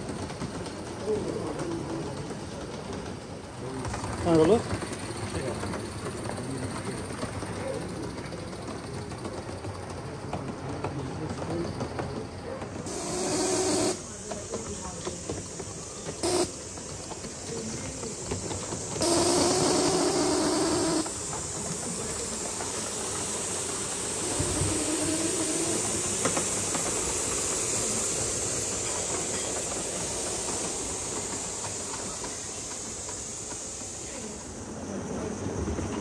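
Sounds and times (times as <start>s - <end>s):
steam locomotive hissing: 0.0s - 36.0s
steam blast with low tone: 12.9s - 14.2s, 16.2s - 16.8s, 18.8s - 34.5s.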